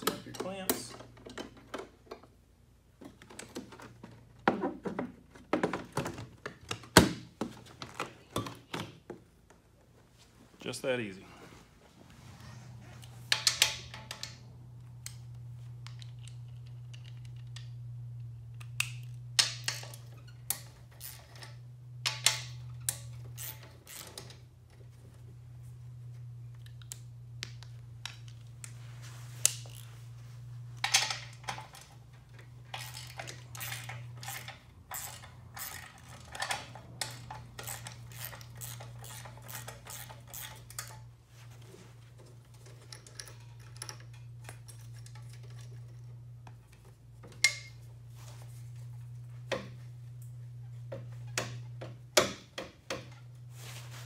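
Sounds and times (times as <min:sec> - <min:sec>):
metal tools clinking and rattling: 0:30.8 - 0:41.1, 0:42.4 - 0:46.2.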